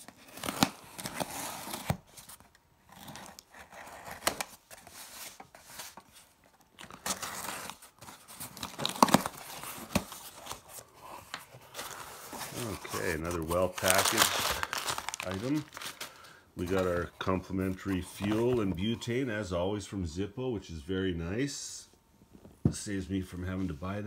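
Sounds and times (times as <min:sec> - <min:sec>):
tape tearing: 0:00.0 - 0:04.9, 0:06.8 - 0:10.8, 0:11.8 - 0:16.1
cardboard scraping: 0:00.0 - 0:18.8.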